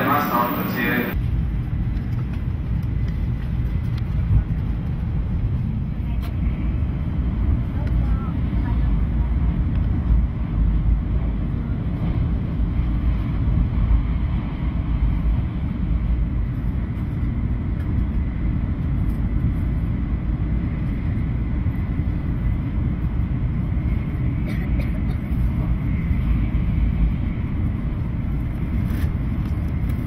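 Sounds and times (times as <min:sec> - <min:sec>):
faint high whine: 0:00.0 - 0:01.3
train cabin low rumble: 0:00.0 - 0:30.0.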